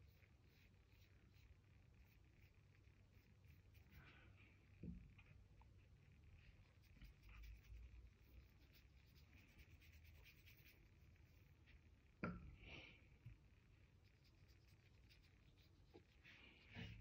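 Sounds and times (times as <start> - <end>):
wet brush stroking paper: 0.0 - 4.2, 6.4 - 11.8, 14.0 - 17.0.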